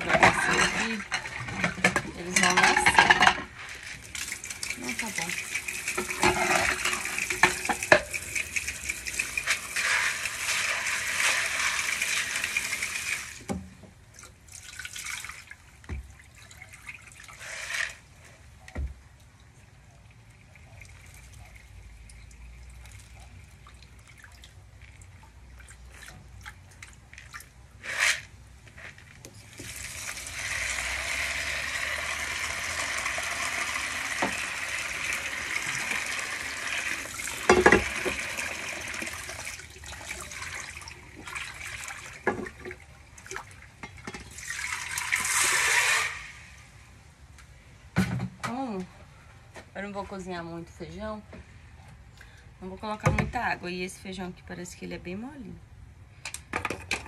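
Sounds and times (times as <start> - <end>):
water splashes: 4.0 - 13.5, 19.0 - 27.8, 32.6 - 46.6
tap water pouring into sink: 4.0 - 13.6, 29.6 - 46.4.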